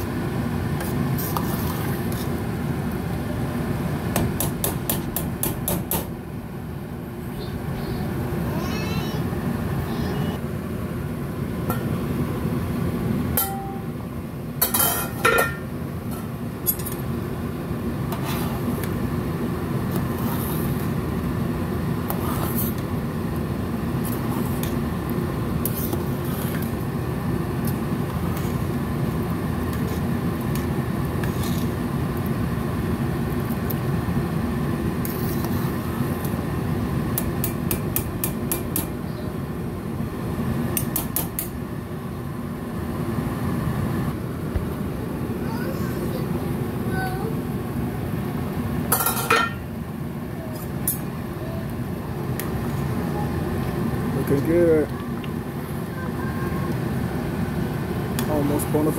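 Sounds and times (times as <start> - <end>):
metal spoon stirring in pot: 25.6 - 26.8, 29.6 - 31.8.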